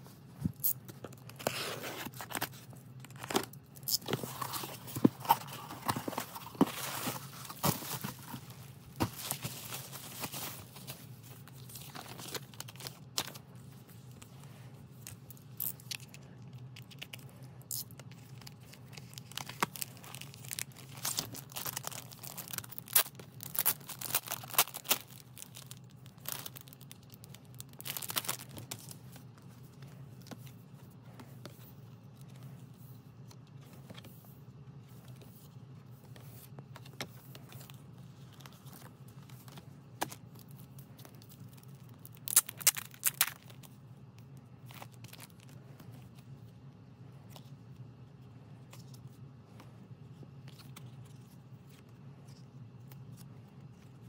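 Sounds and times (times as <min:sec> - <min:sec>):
cardboard packaging handled: 0:00.3 - 0:13.4, 0:18.2 - 0:31.5
plastic wrap crinkling and tearing: 0:15.6 - 0:29.0, 0:40.1 - 0:43.7.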